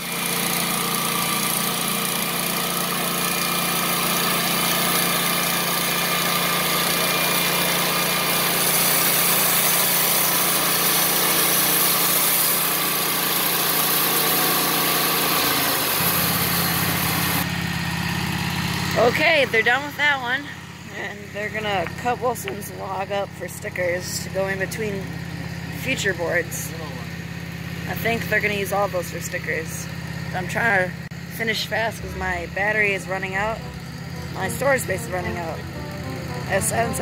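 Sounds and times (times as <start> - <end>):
sawmill engine running under load: 0.0 - 37.0
band blade hissing through wood: 7.4 - 12.8.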